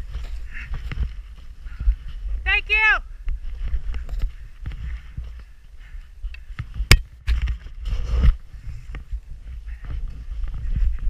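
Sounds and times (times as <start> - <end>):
wind rumbling on microphone: 0.0 - 11.0
skis running through powder snow: 7.6 - 11.0.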